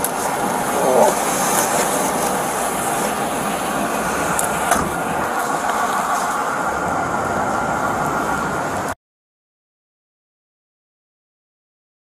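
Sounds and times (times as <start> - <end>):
rushing outdoor noise: 0.0 - 9.0.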